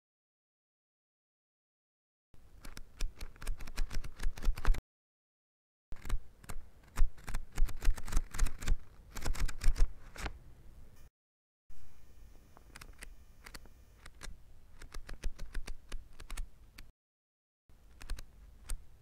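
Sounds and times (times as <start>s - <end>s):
book pages flicking: 6.0s - 10.3s.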